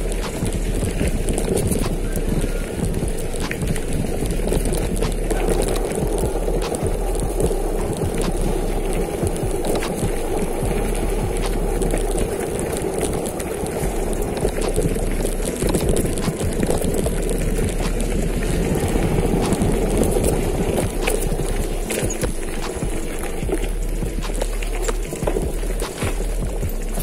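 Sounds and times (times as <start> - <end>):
bike rattles and knocks: 0.0 - 27.0
wind rumble on microphone: 0.0 - 27.0.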